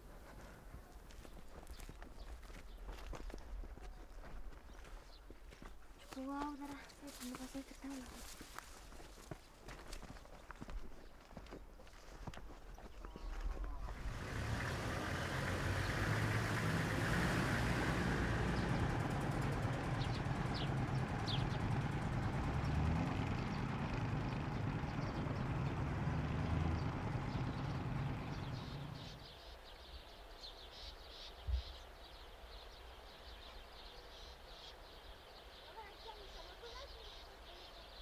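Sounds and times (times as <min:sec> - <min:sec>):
vehicle engine rumbling: 0:13.4 - 0:29.6
bird chirps: 0:18.5 - 0:38.0.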